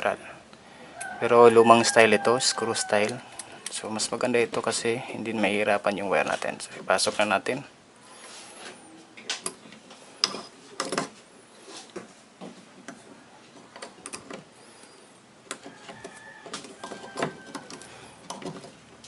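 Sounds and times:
wires clicking and scraping in terminals: 2.7s - 5.6s, 12.8s - 19.0s.

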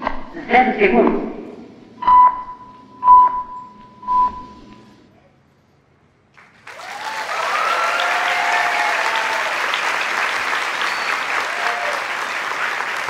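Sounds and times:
radio time signal beeps: 2.0s - 5.0s
audience applause and cheers: 6.4s - 13.0s.

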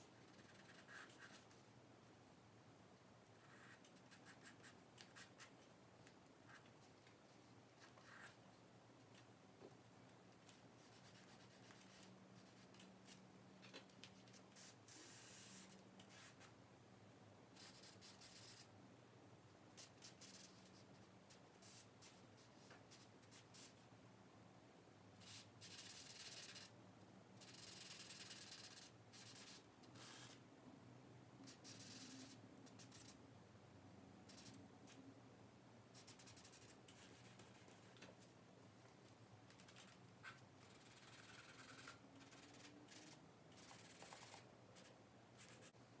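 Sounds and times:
charcoal scratching on paper: 0.1s - 1.6s, 25.2s - 26.7s, 27.4s - 30.4s, 31.5s - 33.2s, 39.6s - 45.8s.

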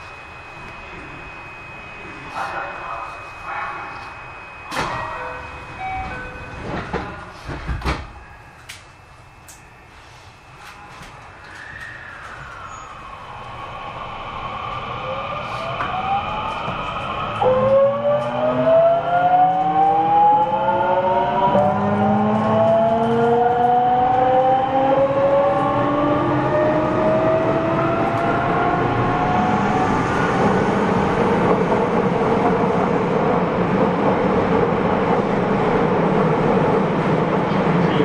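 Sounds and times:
train running noise: 0.0s - 13.6s, 15.4s - 38.0s
electric train motor whine: 8.2s - 31.9s.

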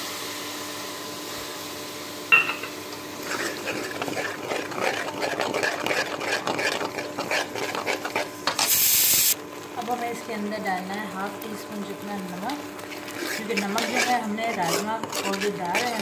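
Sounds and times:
masala sizzling: 0.0s - 16.0s
steel spoon clanking on pan: 2.3s - 2.8s
spoon stirring and scraping paste: 3.2s - 8.8s, 12.3s - 16.0s.

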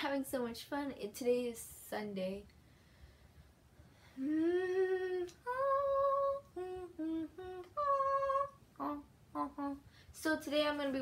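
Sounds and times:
girl humming a tune: 4.2s - 9.8s.

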